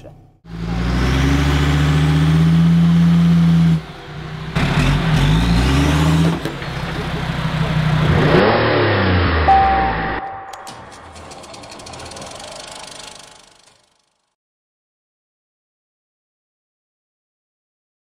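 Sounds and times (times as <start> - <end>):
diesel engine revving: 0.4 - 14.1
short steady tone: 9.4 - 11.1.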